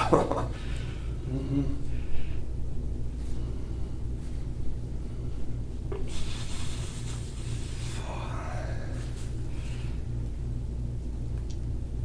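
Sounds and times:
steady low hum: 0.0 - 12.0
soft hiss: 5.3 - 10.5.

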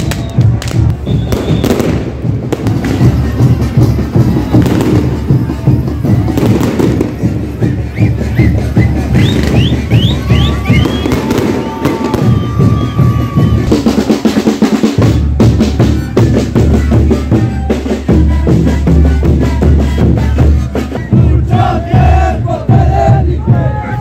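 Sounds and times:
bass drum pounding: 0.0 - 24.0
panpipes and wooden flutes: 0.0 - 24.0
rapid festival drumming: 0.0 - 24.0.

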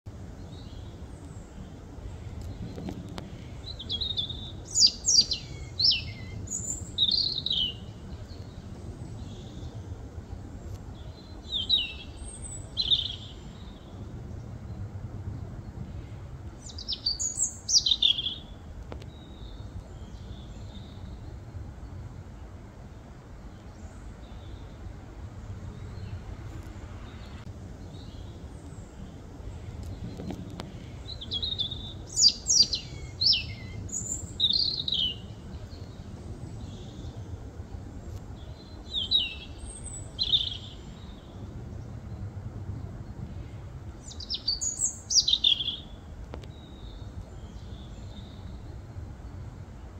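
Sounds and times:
low background rumble: 0.1 - 49.9
robin singing: 0.3 - 9.9, 10.9 - 14.0, 16.5 - 22.0, 27.0 - 37.4, 38.0 - 41.4, 44.0 - 49.4.

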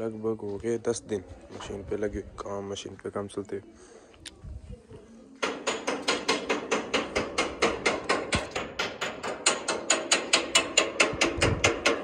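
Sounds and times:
hammer beating on metal: 5.4 - 12.0.

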